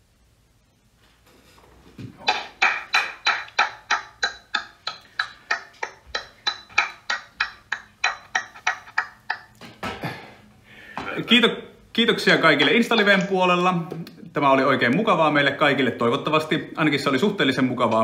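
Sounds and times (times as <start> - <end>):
person clapping: 2.2 - 9.6.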